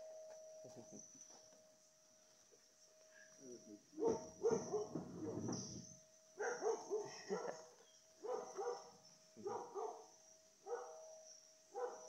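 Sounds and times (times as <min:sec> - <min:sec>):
dog barking: 0:04.0 - 0:05.5, 0:06.4 - 0:11.0, 0:11.8 - 0:12.0.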